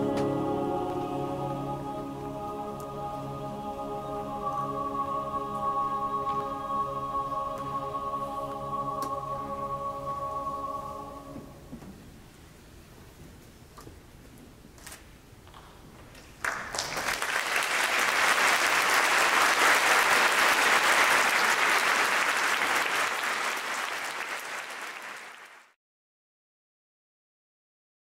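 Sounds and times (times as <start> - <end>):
audience applauding: 16.4 - 25.8.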